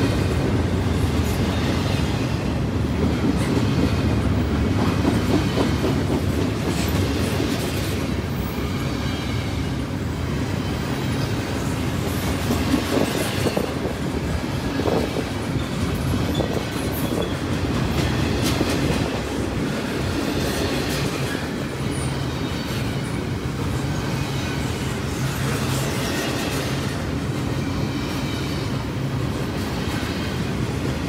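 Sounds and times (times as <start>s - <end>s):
freight train cars rolling past: 0.0s - 31.0s
wheels clacking over rail joints: 10.9s - 23.2s.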